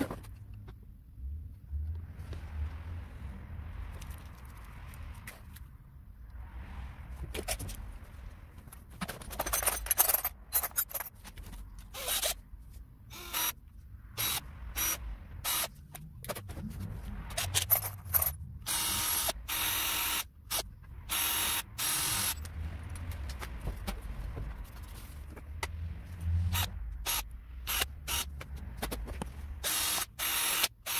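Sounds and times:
metal tools clinking in a toolbox: 8.9 - 12.4, 17.3 - 18.5
scraping and rustling: 23.0 - 26.5.

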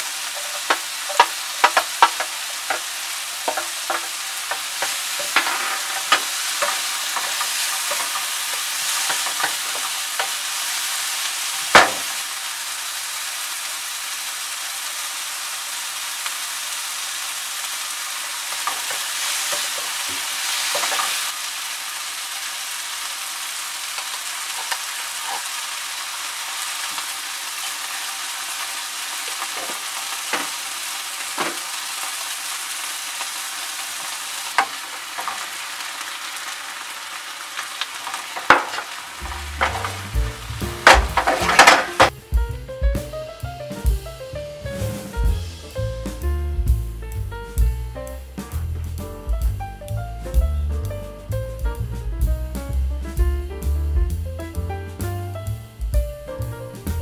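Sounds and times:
wooden spatula knocking pan: 0.0 - 10.4, 11.6 - 12.2, 18.5 - 21.3, 29.3 - 30.6, 31.4 - 31.7, 38.0 - 42.2
vegetables sizzling in oil: 0.0 - 57.0.

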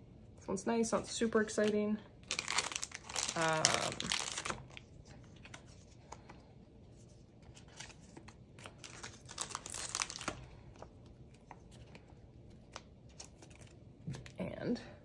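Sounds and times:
plastic packaging crinkling: 1.5 - 5.8, 7.6 - 14.4.

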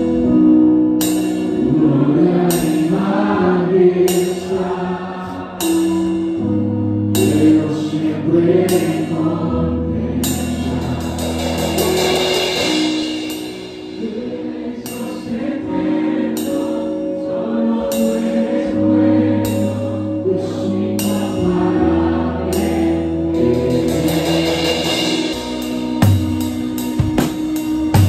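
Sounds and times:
drum kit: 0.0 - 3.4, 4.0 - 4.8, 5.5 - 8.0, 8.6 - 9.4, 10.2 - 18.8, 19.4 - 28.0
low bass notes: 0.0 - 28.0
cymbal crashes: 11.0 - 14.2
voices singing: 13.9 - 25.3.

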